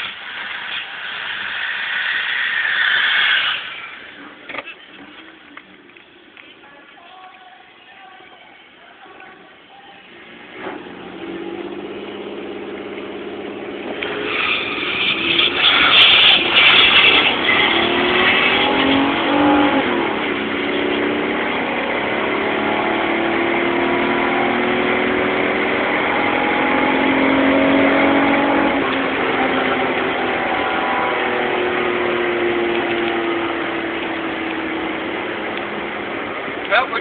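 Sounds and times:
car engine accelerating: 10.0 - 37.0.

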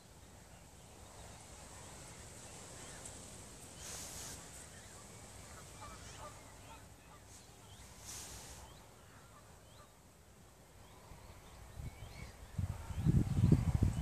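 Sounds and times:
distant bird calls: 0.0 - 14.0
brief hiss: 2.6 - 6.3, 7.3 - 8.9.

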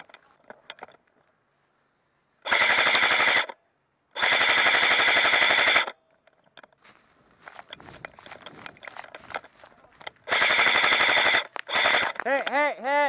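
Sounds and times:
airsoft rifle full-auto bursts: 2.4 - 6.0, 10.2 - 12.3.

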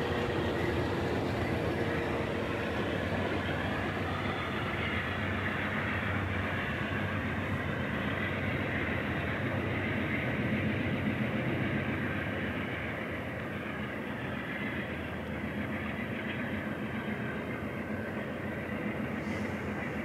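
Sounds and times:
train wheels on track: 0.0 - 20.0.

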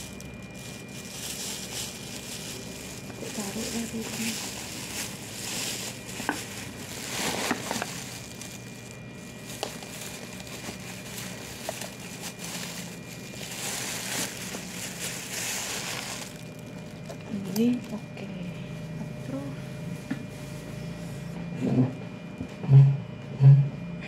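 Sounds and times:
plastic crinkling: 0.0 - 18.3.

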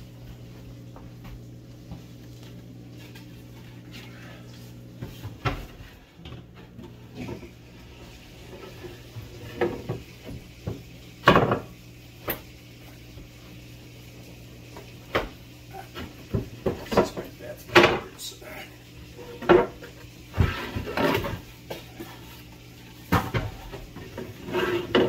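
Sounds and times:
steady low hum: 0.0 - 10.8.

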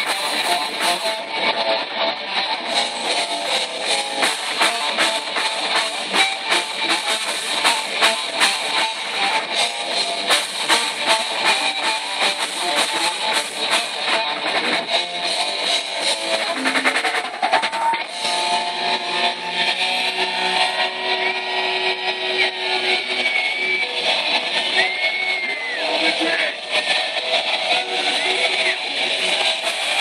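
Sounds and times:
drum kit hits: 0.0 - 1.2, 3.2 - 18.9
electric guitar: 0.0 - 30.0.

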